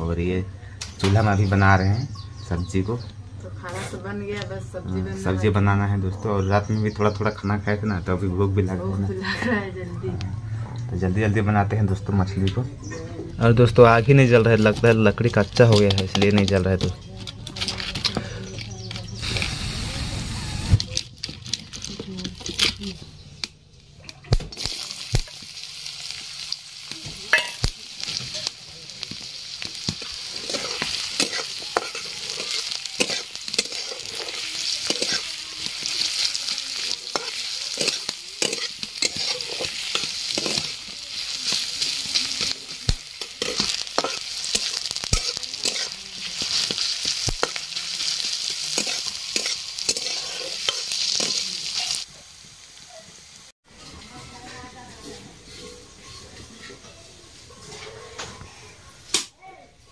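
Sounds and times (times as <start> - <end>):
onions sizzling in oil: 13.6 - 23.4, 24.1 - 57.4
metal spatula scraping pan: 29.9 - 52.0, 53.8 - 58.4.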